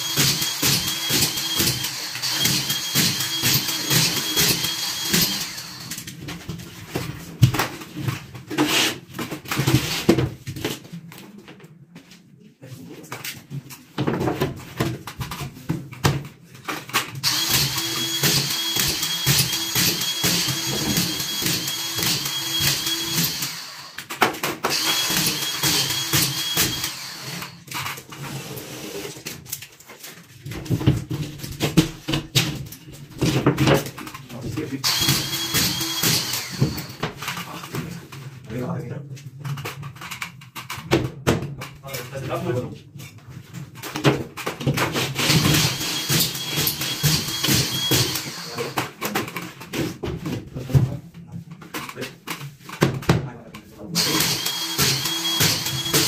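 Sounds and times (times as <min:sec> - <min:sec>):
screw gun motor: 0:00.0 - 0:06.1, 0:17.2 - 0:28.0, 0:34.8 - 0:37.4, 0:45.3 - 0:49.0, 0:54.0 - 0:56.0
plasterboard knocks and clatter: 0:13.5 - 0:17.0, 0:30.5 - 0:34.6.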